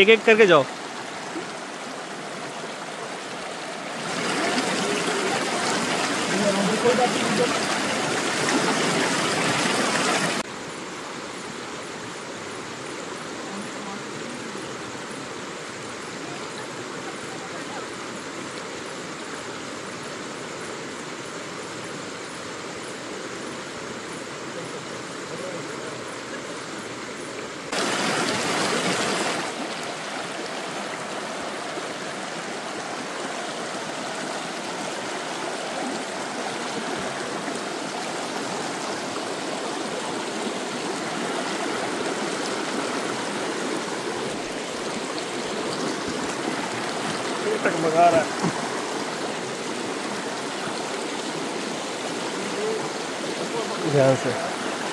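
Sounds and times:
river rushing over rocks: 0:00.0 - 0:11.4, 0:25.6 - 0:54.9.

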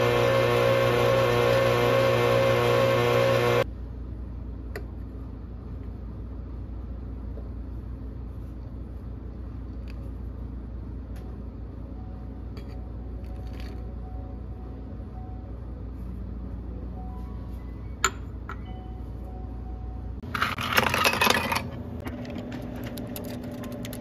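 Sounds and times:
espresso machine pump hum: 0:00.0 - 0:03.7
steady low hum: 0:03.5 - 0:20.4.

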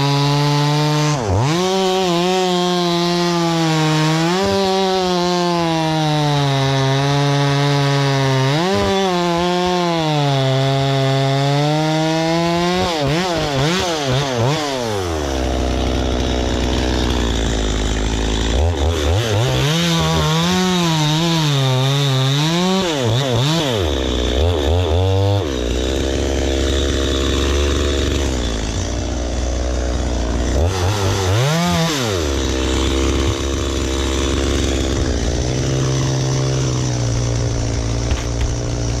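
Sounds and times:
chainsaw revving and idling: 0:00.0 - 0:39.0.

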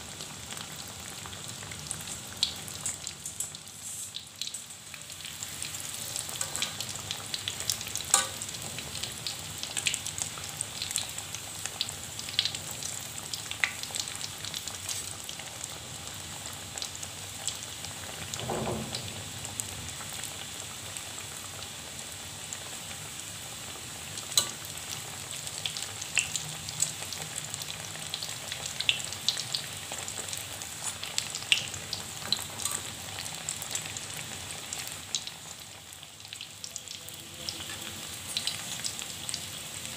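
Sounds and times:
pastries sizzling in hot oil: 0:00.0 - 0:39.9
oil crackling and popping: 0:00.7 - 0:15.8, 0:28.2 - 0:34.2.

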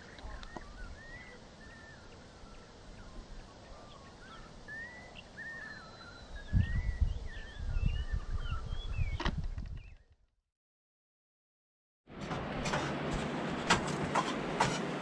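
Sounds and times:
birds chirping and whistling: 0:00.0 - 0:10.1.

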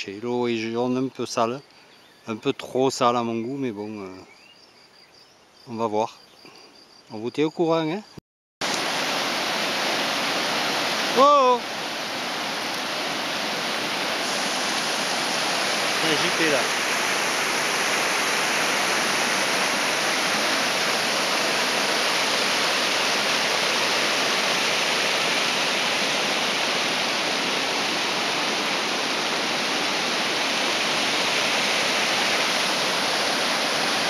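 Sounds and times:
river water rushing over weir: 0:08.6 - 0:34.0.

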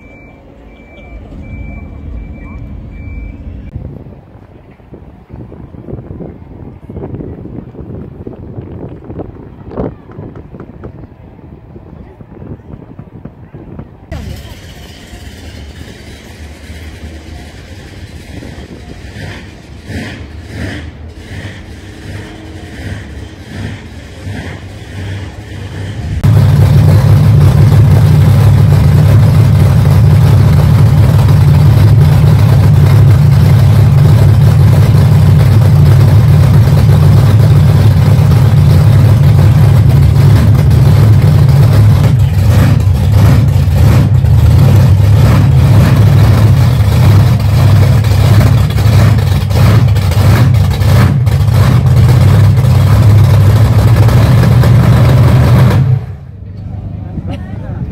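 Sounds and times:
monster truck engine running loud: 0:13.7 - 0:57.9.

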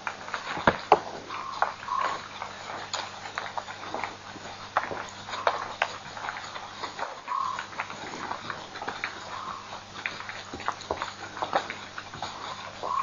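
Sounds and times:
faint low hum: 0:00.0 - 0:13.0
animal call: 0:00.6 - 0:04.2, 0:04.8 - 0:13.0.

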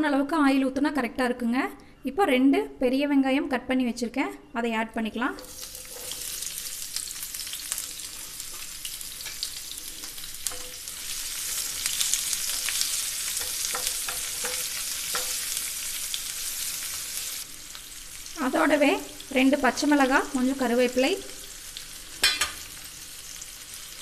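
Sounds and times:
wooden spatula scraping pan: 0:05.4 - 0:06.6
onions sizzling in hot oil: 0:05.4 - 0:24.0.

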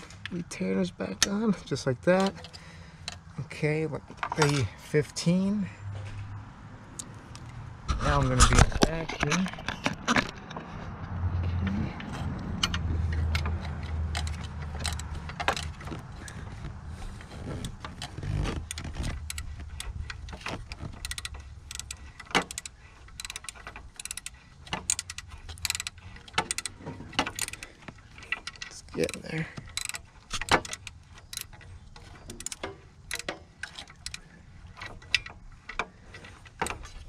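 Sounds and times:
wrench clicking against metal: 0:12.6 - 0:15.9, 0:18.6 - 0:34.3.

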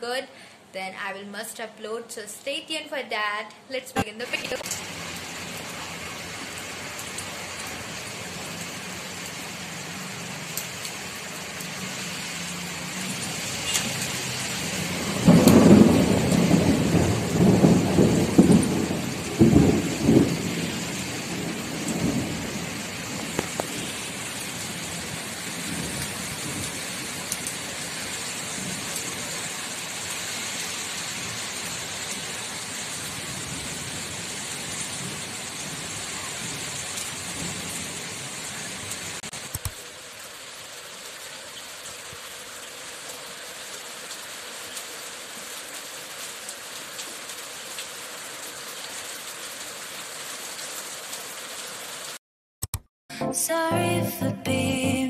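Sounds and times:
rain on wet paving: 0:04.0 - 0:52.2
thunder rumbling: 0:14.9 - 0:26.8.

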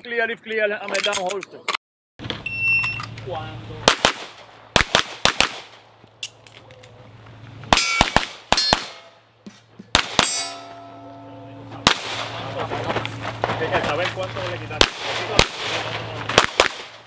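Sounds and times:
metallic ringing of steel targets: 0:07.7 - 0:09.2, 0:10.2 - 0:12.5.

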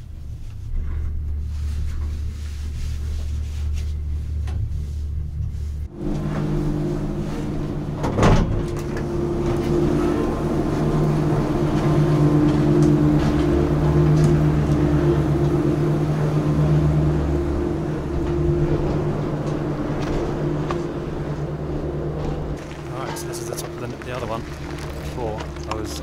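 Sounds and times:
machinery humming: 0:00.0 - 0:26.0
machinery clunk: 0:05.9 - 0:26.0.

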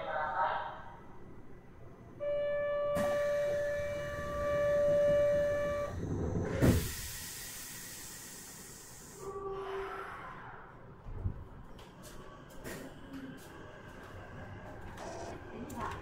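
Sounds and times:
train door buzzer: 0:02.2 - 0:07.0
hiss of air: 0:06.6 - 0:09.2.

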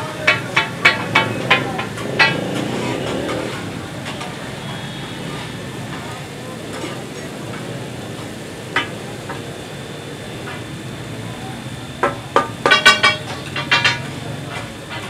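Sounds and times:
ringing metallic clanks: 0:00.0 - 0:04.8, 0:12.0 - 0:15.0.

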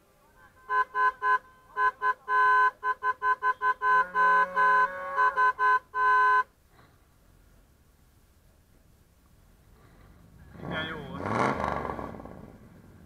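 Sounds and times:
car horn honking: 0:00.4 - 0:06.5.

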